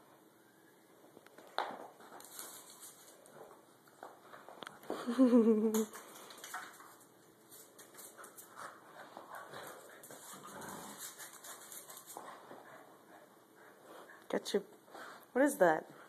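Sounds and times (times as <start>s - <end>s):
claws clicking on tile floor: 5.7s - 8.6s.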